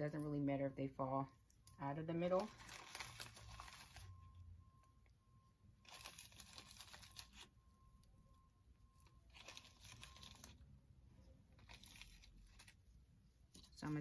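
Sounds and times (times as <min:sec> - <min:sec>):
plastic bag crinkling: 0:02.2 - 0:04.3, 0:05.8 - 0:07.5, 0:09.2 - 0:10.7, 0:11.5 - 0:13.0.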